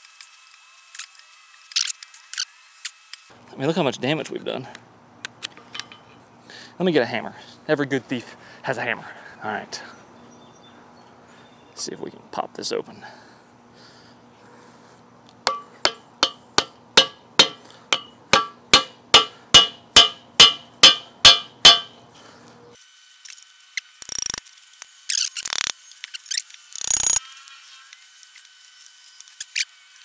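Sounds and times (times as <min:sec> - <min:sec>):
hammer striking screwdriver handle: 0:15.5 - 0:21.9, 0:24.0 - 0:24.4
screwdriver clicking and scraping in lock: 0:24.0 - 0:24.4, 0:26.8 - 0:27.2.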